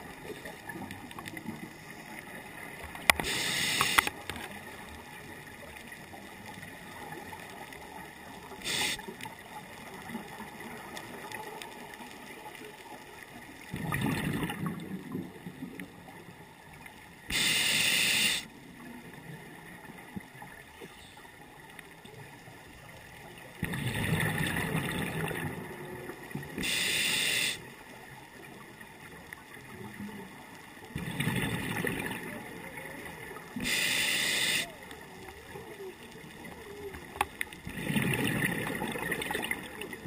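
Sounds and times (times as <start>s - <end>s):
regulator inhale hiss: 3.2s - 4.1s, 8.6s - 9.1s, 17.3s - 18.5s, 26.6s - 27.7s, 33.6s - 34.8s
exhaust bubbles bursting: 31.0s - 32.3s, 37.6s - 40.0s.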